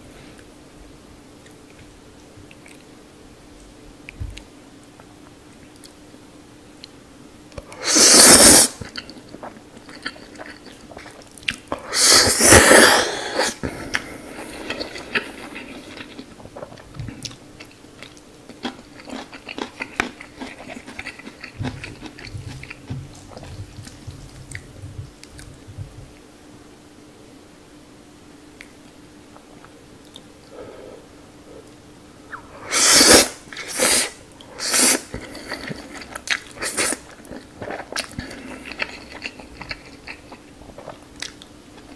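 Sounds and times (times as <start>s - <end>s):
chewing with wet mouth clicks: 1.4s - 2.9s, 4.0s - 6.0s, 8.8s - 11.8s, 14.6s - 25.6s, 29.6s - 30.3s, 35.1s - 41.9s
slurping noodles: 7.8s - 8.8s, 11.9s - 16.1s, 32.3s - 36.0s.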